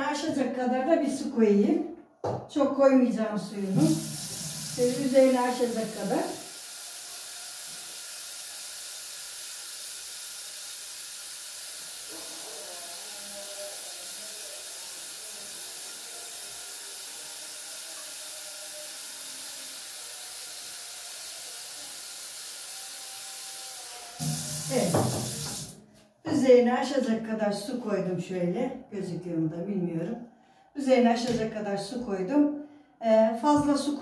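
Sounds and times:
tap water running into a pot: 3.6 - 25.8.

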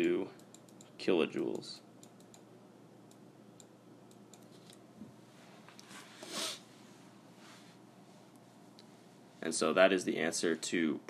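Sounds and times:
room hiss: 4.9 - 11.0
stylus swishing across tablet: 5.9 - 6.7.

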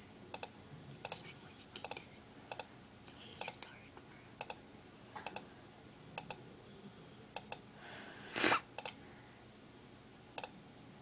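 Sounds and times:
computer mouse clicking: 0.3 - 1.2, 1.8 - 3.7, 4.4 - 4.6, 5.2 - 5.4, 6.2 - 6.4, 7.3 - 7.6, 8.8 - 9.0, 10.4 - 10.6.

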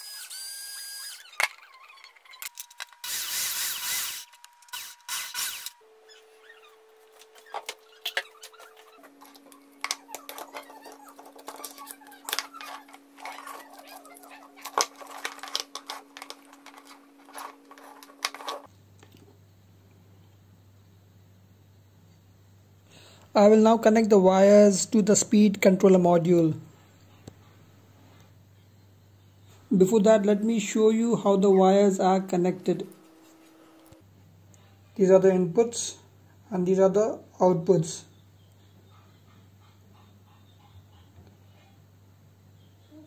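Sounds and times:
cordless drill whine: 0.0 - 9.9.

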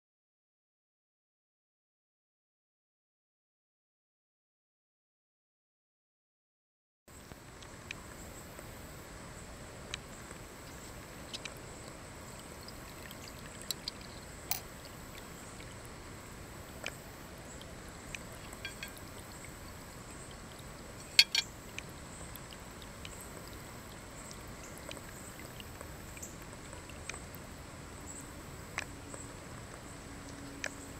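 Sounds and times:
water trickling into bowl: 9.6 - 30.9.

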